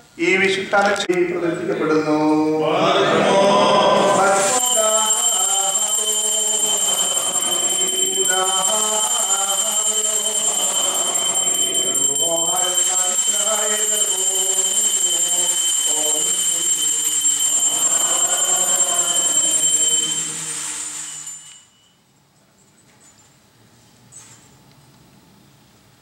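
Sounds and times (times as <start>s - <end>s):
men chanting a hymn: 1.4s - 20.6s
steady high-pitched tone: 3.2s - 22.1s.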